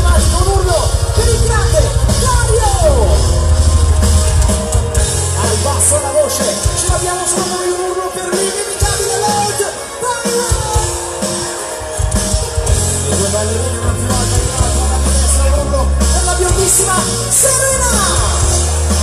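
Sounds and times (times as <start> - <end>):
bass line: 0.0 - 7.6, 11.9 - 19.0
live band music: 0.0 - 19.0.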